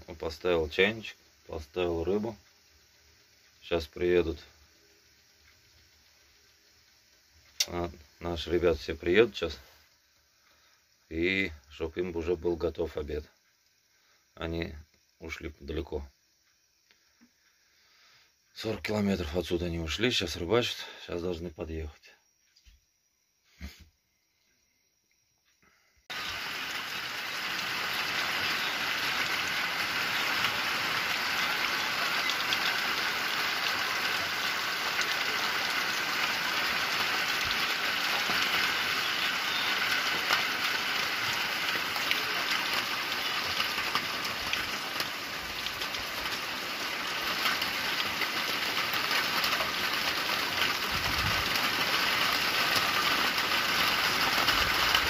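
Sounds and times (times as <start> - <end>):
rain falling on water: 0.0 - 13.3, 26.1 - 55.0.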